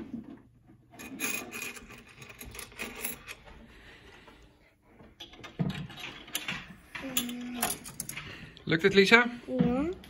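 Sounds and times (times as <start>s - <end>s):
metal coins clinking: 1.0s - 3.4s.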